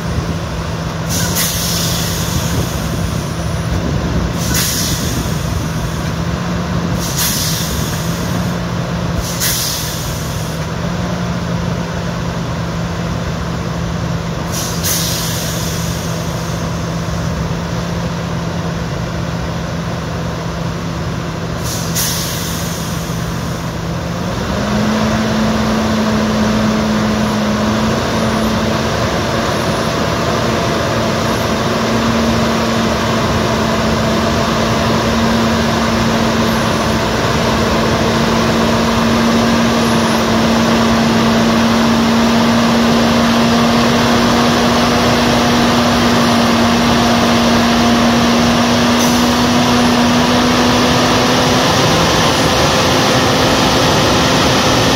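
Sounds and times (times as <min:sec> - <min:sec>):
heavy diesel engine running: 0:00.0 - 0:54.9
air hiss: 0:01.0 - 0:03.4, 0:04.3 - 0:06.1, 0:06.9 - 0:08.5, 0:09.2 - 0:10.7, 0:14.5 - 0:16.8, 0:21.6 - 0:23.6.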